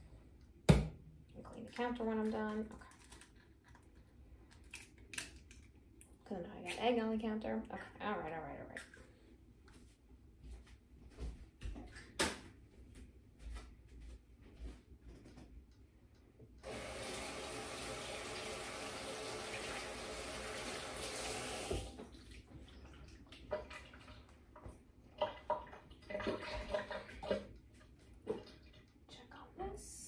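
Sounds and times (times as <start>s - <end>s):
kitchen tap running: 16.6s - 24.4s.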